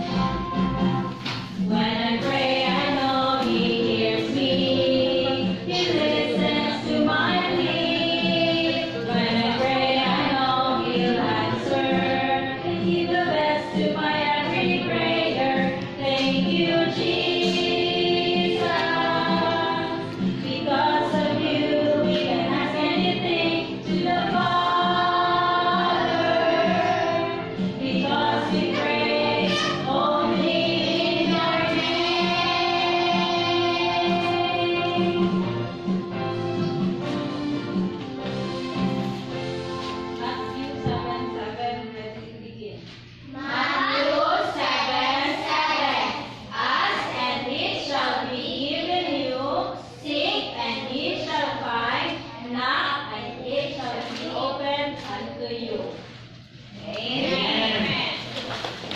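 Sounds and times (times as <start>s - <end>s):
children singing: 0.0s - 35.6s, 43.3s - 47.3s
music with steady beat: 0.0s - 40.2s.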